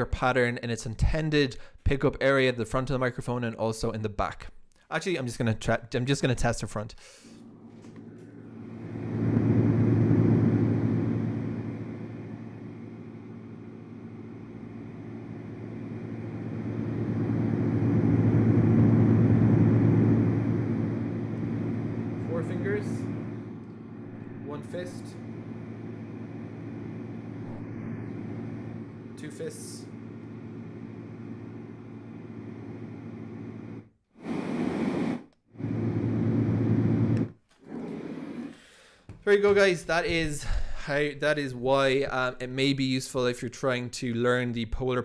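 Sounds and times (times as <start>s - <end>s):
brown noise from noise machine: 14.4s - 31.0s.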